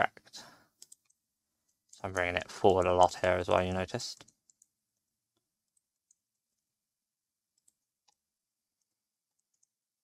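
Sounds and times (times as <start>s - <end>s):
mouse and keyboard clicks: 0.8s - 1.2s.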